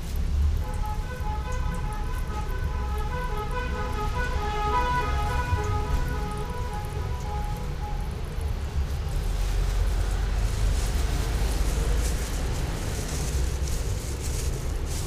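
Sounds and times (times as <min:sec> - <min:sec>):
gas burner rumbling: 0:08.0 - 0:15.0.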